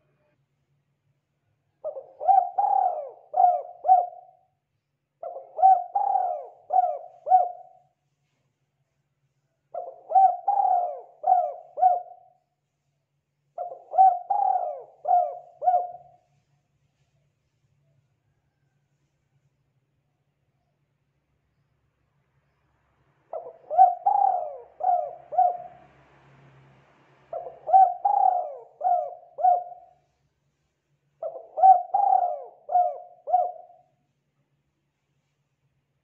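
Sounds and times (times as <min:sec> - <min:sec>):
dove cooing: 0:01.8 - 0:04.5, 0:05.2 - 0:07.8, 0:09.7 - 0:12.4, 0:13.6 - 0:16.2, 0:23.3 - 0:25.8, 0:27.3 - 0:30.0, 0:31.2 - 0:33.9.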